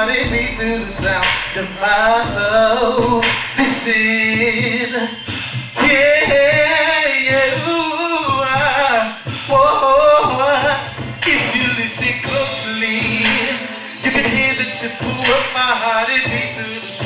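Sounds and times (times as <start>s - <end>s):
man singing: 0.0s - 17.0s
r and b music: 0.0s - 17.0s.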